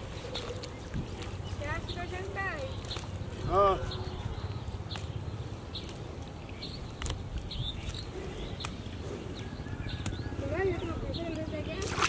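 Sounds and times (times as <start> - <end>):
fish flapping against bamboo trap: 11.8 - 12.0.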